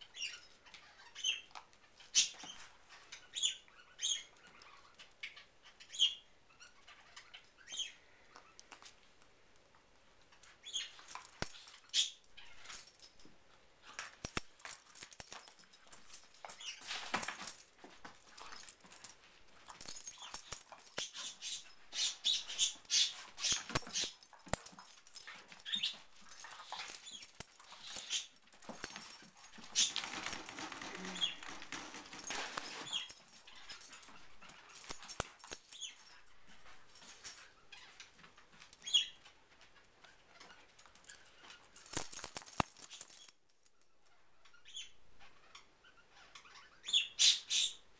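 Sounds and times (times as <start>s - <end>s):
dogs scuffling and mouthing: 1.5s - 3.2s, 8.4s - 43.3s.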